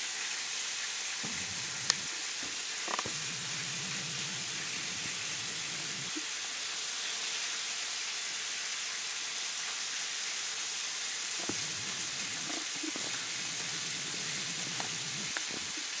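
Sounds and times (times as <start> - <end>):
fish sizzling in a pan: 0.0 - 16.0
faint clicks: 1.2 - 6.2, 11.4 - 15.8.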